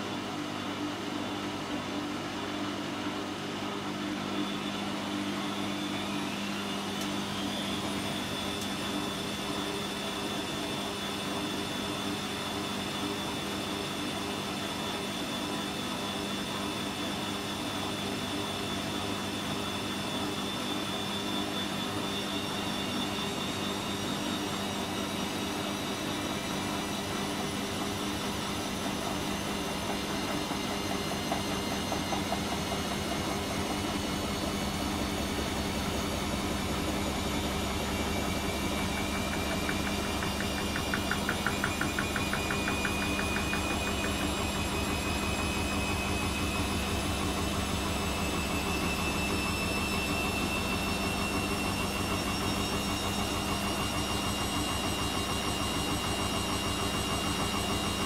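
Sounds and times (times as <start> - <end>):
washing machine motor whine: 0.0 - 58.0
washing machine drum hum: 26.3 - 58.0.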